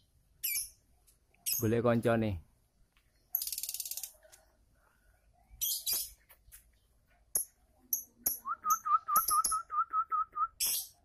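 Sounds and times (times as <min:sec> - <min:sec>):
lovebirds screeching and chirping: 0:00.4 - 0:00.8, 0:05.6 - 0:06.3.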